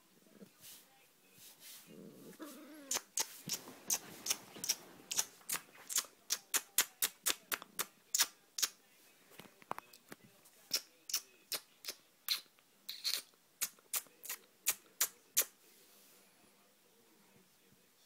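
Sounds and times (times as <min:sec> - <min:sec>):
person making kissing smacks: 0:02.9 - 0:08.8, 0:10.7 - 0:15.5.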